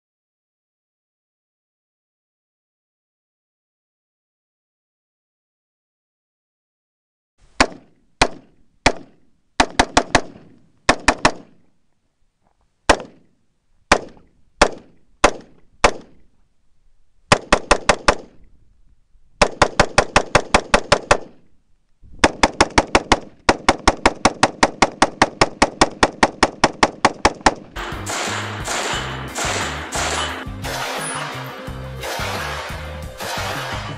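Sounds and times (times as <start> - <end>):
rifle gunshots with echo: 7.6 - 11.6, 22.2 - 33.9.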